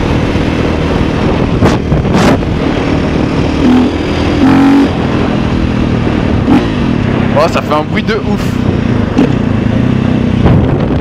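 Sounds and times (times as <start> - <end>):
dirt bike engine running: 0.0 - 11.0
wind rushing over microphone: 0.0 - 11.0.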